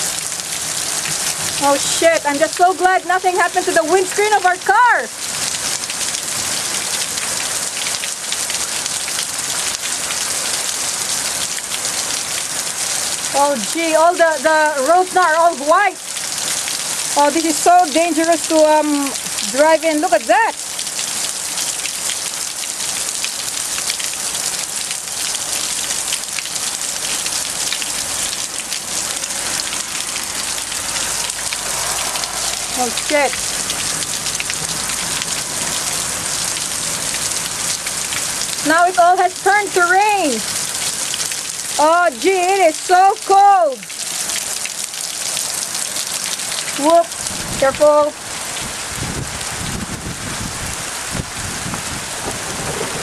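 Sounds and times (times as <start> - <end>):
hail clattering on hard surfaces: 52.0 - 53.0.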